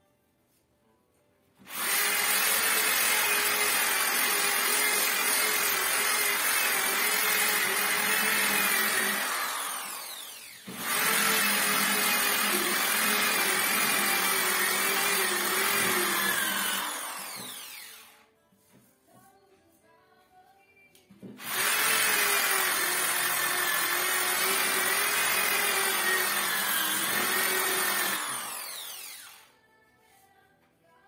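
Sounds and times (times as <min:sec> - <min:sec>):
orbital sander motor running: 0:06.3 - 0:18.0, 0:21.4 - 0:29.4.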